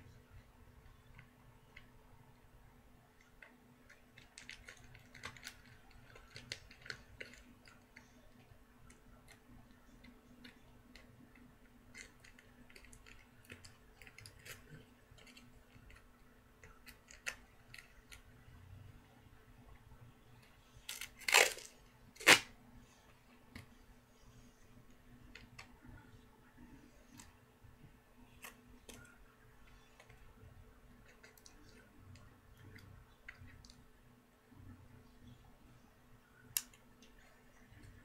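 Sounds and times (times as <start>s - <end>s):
foil and tape crinkling: 20.9s - 22.5s.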